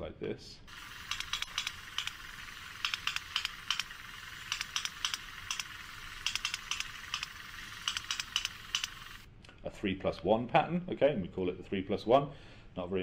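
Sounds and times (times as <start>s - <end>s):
sperm whale clicks: 0.7s - 9.2s
steady hiss: 0.7s - 9.3s.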